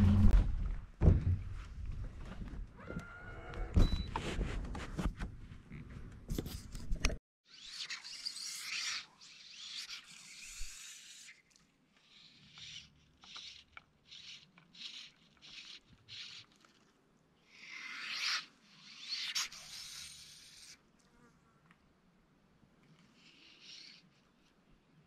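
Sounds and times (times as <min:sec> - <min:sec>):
rubbing and scraping of gear: 0:03.7 - 0:07.2.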